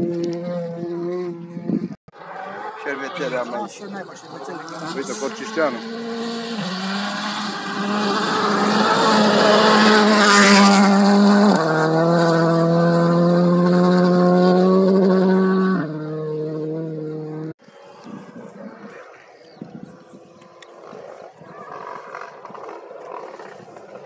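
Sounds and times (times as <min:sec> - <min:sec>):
rally car engine at high revs: 0:03.7 - 0:17.6.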